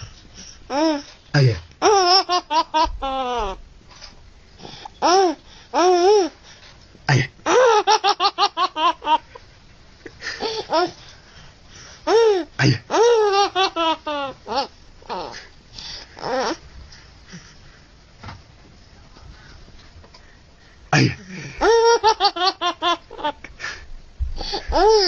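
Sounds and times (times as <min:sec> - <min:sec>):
baby giggling: 0:01.8 - 0:03.6, 0:12.1 - 0:15.5, 0:21.6 - 0:23.4, 0:24.6 - 0:25.0.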